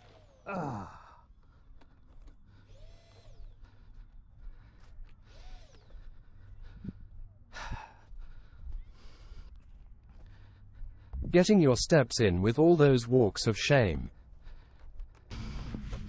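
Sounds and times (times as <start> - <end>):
electric motor whine: 0.0 - 7.2.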